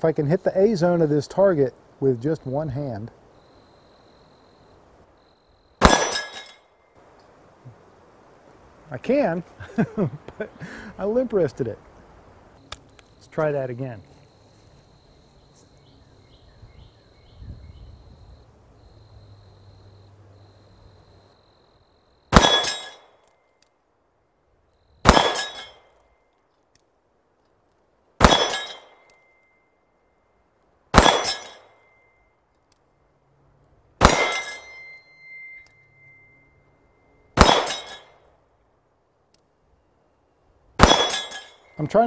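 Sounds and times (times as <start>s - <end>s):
pistol shots: 5.8s - 6.6s, 22.3s - 23.1s, 25.0s - 25.8s, 28.2s - 29.1s, 30.9s - 31.8s, 34.0s - 34.7s, 37.4s - 38.1s, 40.8s - 41.8s
bullet clanging on steel target: 5.8s - 6.7s, 22.4s - 23.4s, 25.1s - 26.0s, 28.2s - 29.5s, 31.0s - 31.9s, 34.0s - 36.3s, 37.4s - 38.2s, 40.8s - 42.0s.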